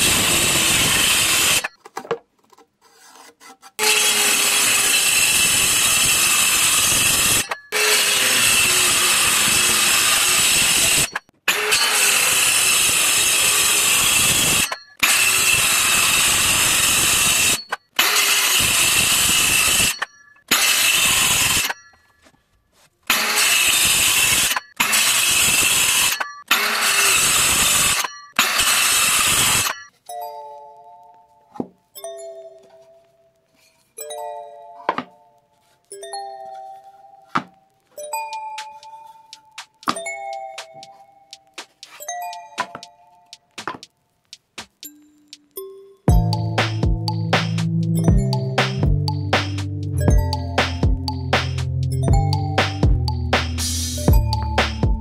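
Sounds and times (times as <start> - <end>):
circular saw cutting plywood: 0.0 - 1.8, 2.5 - 21.8, 23.0 - 29.9.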